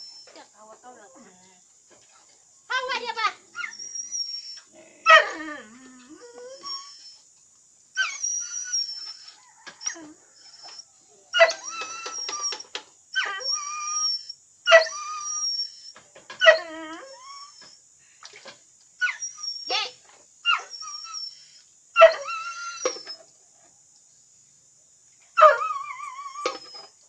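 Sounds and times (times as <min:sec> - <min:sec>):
dogs whining and yelping: 0:03.5 - 0:07.3, 0:08.0 - 0:17.8, 0:19.0 - 0:23.3, 0:25.4 - 0:27.0.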